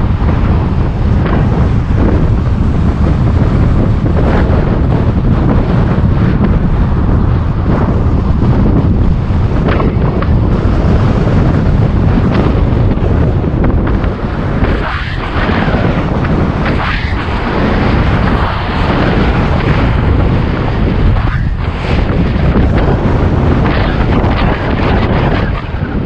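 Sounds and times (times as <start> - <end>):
steady low rumble: 0.0 - 26.0
wind buffeting microphone: 0.0 - 26.0.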